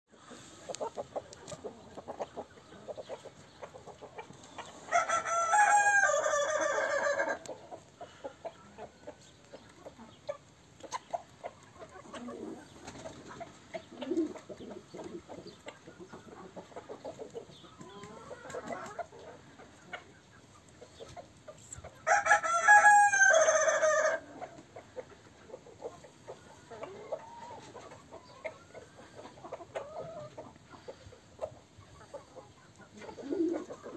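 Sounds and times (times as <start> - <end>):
chickens clucking: 0.1 - 33.9
rooster crowing: 4.9 - 7.4, 22.1 - 24.2.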